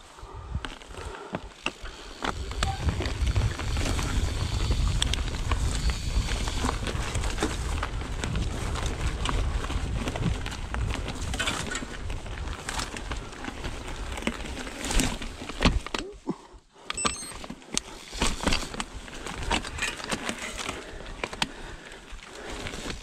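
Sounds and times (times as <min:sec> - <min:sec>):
bike tyres on dirt: 0:00.0 - 0:23.0
bike clicking and rattling: 0:00.6 - 0:16.2, 0:16.8 - 0:23.0.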